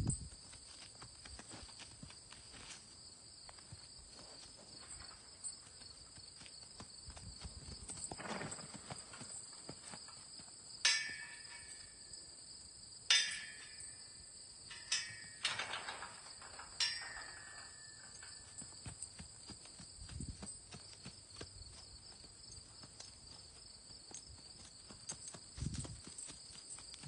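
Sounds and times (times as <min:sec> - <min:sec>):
crickets chirring: 0:00.0 - 0:27.0
metal panels clanking: 0:10.9 - 0:12.0, 0:13.1 - 0:18.6.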